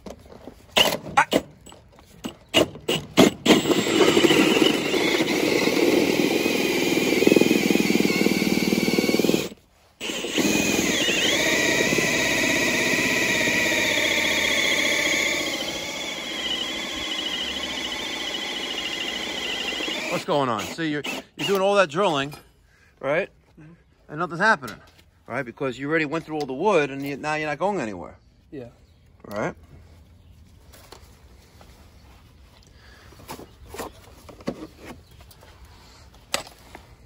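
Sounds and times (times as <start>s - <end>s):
cordless drill with hole saw: 2.5s - 21.8s.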